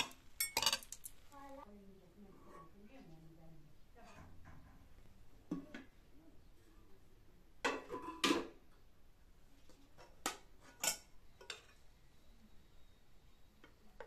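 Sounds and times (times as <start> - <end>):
metal kitchenware clinking: 0.0 - 1.2, 7.6 - 8.6, 10.0 - 11.8
metal pot lid clattering: 7.7 - 8.6.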